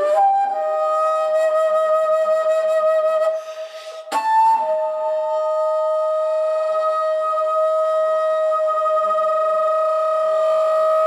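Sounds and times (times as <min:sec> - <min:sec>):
flute playing notes: 0:00.0 - 0:11.0
breathy air noise: 0:03.4 - 0:04.2.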